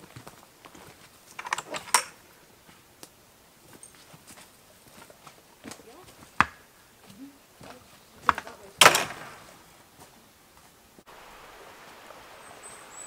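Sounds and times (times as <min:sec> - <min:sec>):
boots scuffing on stony path: 0:00.0 - 0:01.4, 0:03.6 - 0:10.8
woodland background: 0:00.0 - 0:13.0
high bird chirp: 0:12.4 - 0:13.0.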